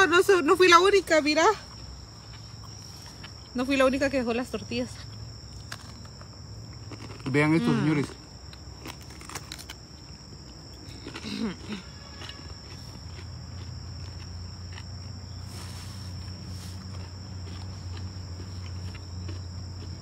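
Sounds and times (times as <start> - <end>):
insects chirring: 0.0 - 20.0
crunching bite: 5.4 - 20.0.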